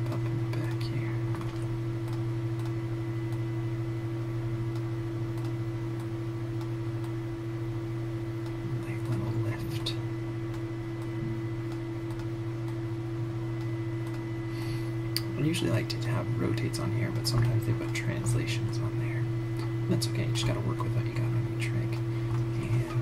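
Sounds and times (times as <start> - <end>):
low electrical hum: 0.0 - 23.0.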